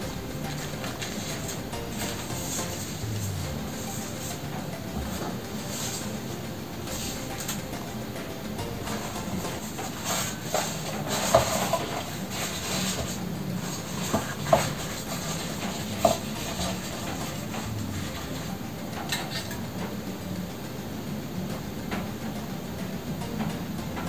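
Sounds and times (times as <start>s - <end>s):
pastry sheets rustling and crinkling: 8.9s - 18.2s.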